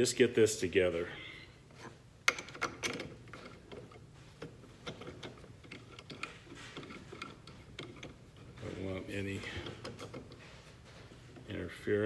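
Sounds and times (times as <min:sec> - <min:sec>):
metal bolts clicking and tapping: 0:02.2 - 0:10.5.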